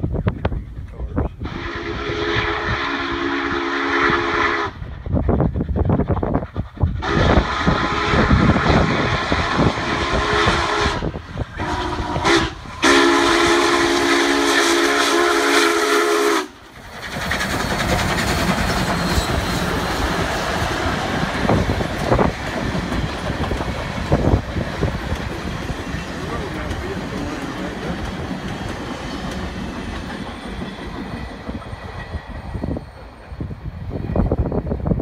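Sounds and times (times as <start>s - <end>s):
heavy locomotive noise: 0.0s - 35.0s
train passing close: 0.0s - 35.0s
steam locomotive whistle blasts: 1.4s - 4.9s, 7.0s - 16.6s.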